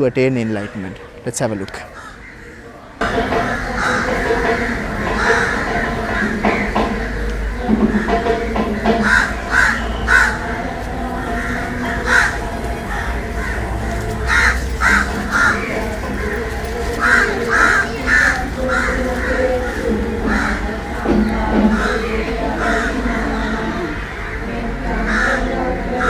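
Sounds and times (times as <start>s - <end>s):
crows cawing: 0.4s - 26.0s.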